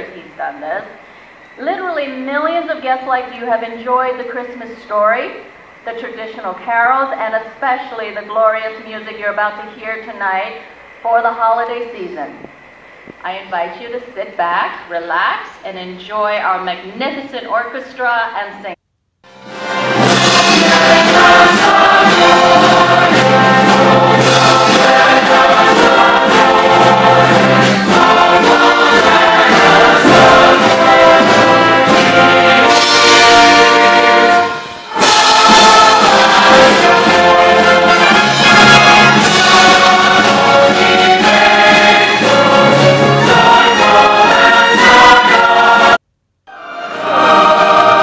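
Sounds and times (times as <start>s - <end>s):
orchestra with brass: 19.3s - 48.0s
large choir singing: 19.7s - 48.0s.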